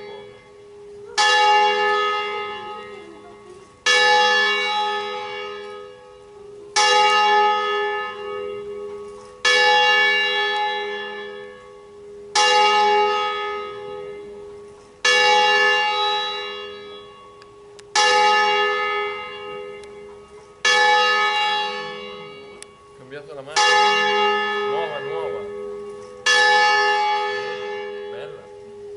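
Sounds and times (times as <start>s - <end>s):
church bell ringing: 0.0s - 28.9s.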